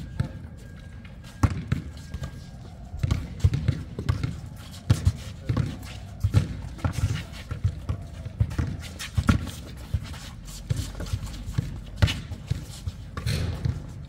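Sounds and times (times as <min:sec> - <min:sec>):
basketball bouncing on hard court: 0:01.4 - 0:01.8, 0:03.0 - 0:09.4.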